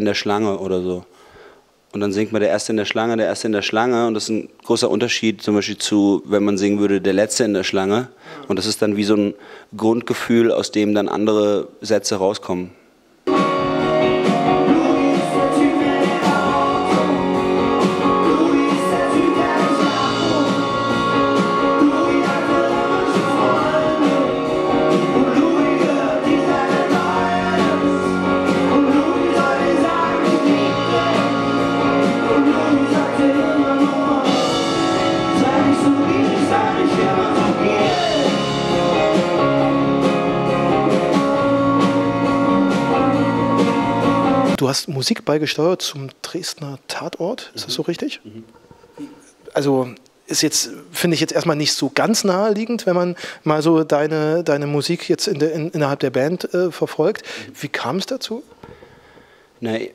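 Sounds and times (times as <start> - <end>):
rock band playing: 13.3 - 44.6
man singing: 14.4 - 39.6.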